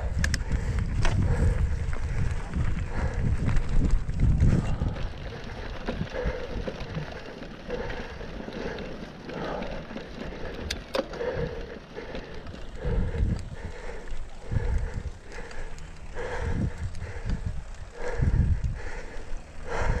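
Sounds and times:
wind on microphone: 0.0 - 7.1, 12.4 - 20.0
bike clicks: 0.0 - 20.0
bike tyres rolling on dirt: 0.0 - 20.0
rider breathing: 0.0 - 20.0.

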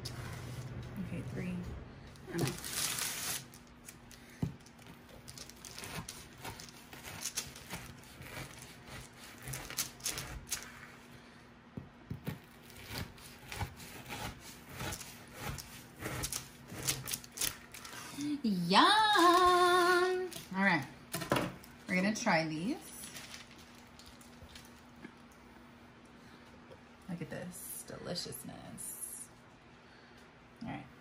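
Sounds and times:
knife crackling through sweet treat: 2.3 - 11.1, 12.2 - 18.2.

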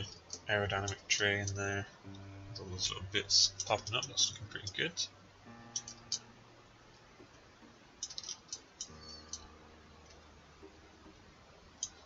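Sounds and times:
computer mouse and keyboard clicking: 8.0 - 9.5.

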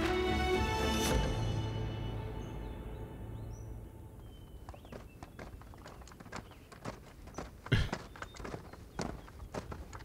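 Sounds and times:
footsteps on a path: 4.2 - 10.0.

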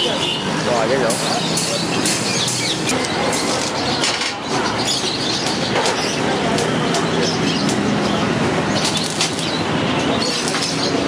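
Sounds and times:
welding arc crackling: 5.4 - 11.0.

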